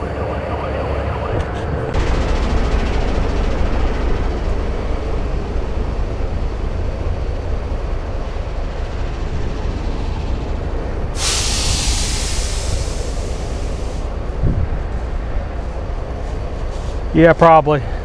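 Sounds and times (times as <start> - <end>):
diesel truck engine rumbling: 0.0 - 18.0
loud air hiss: 11.2 - 14.2.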